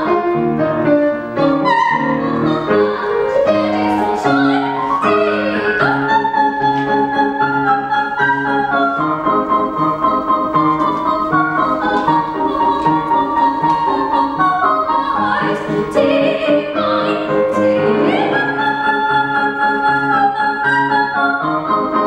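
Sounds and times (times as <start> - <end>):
grand piano: 0.0 - 22.0
soprano singing: 0.0 - 22.0.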